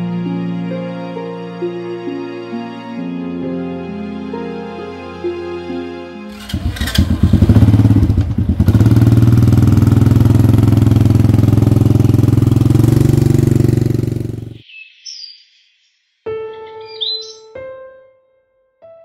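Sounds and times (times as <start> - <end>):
motor scooter engine running: 6.3 - 14.6.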